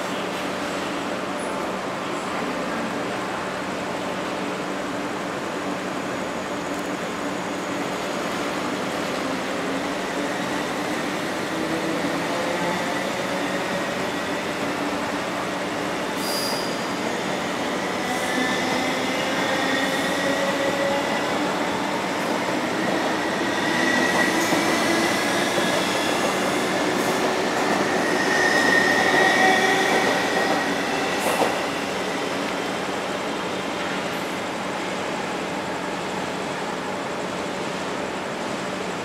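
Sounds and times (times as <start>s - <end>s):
train wheels squealing: 16.0s - 32.3s.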